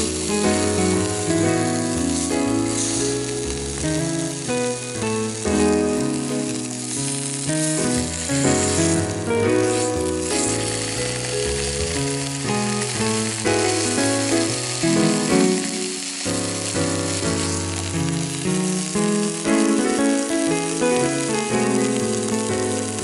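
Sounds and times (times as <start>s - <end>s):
background music with bass: 0.0s - 15.4s
steak sizzling in a frying pan: 0.0s - 23.0s.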